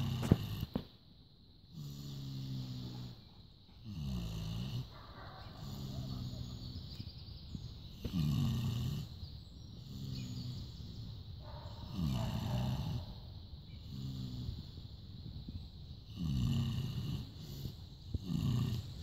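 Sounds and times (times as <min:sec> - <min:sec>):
pig snoring: 0:00.0 - 0:00.9, 0:01.7 - 0:04.9, 0:05.5 - 0:07.0, 0:07.9 - 0:09.2, 0:09.8 - 0:11.1, 0:11.8 - 0:14.8, 0:16.0 - 0:19.0.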